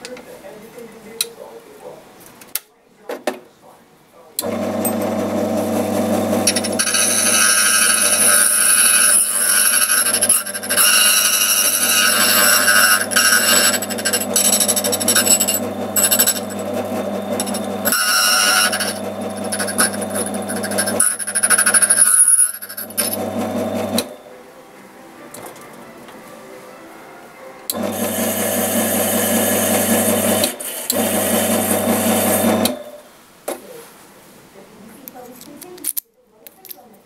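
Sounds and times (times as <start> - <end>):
electric motor running: 4.4 - 24.2, 27.7 - 32.9
cutter grinding a key: 6.4 - 24.2.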